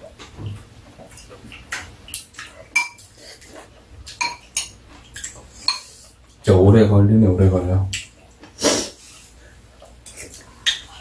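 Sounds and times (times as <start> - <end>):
spoons clinking against bowls: 2.7 - 3.1, 4.1 - 6.0.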